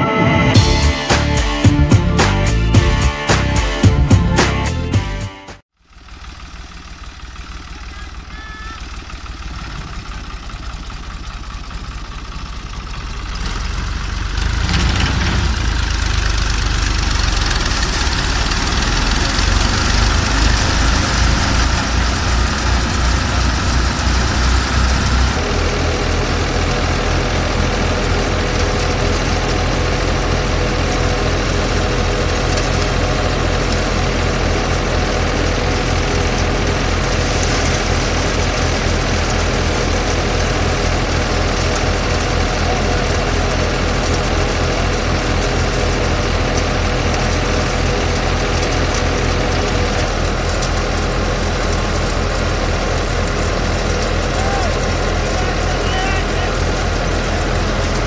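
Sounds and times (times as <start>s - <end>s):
fast engine beat: 0.0s - 58.0s
tractor diesel engine running: 0.0s - 58.0s.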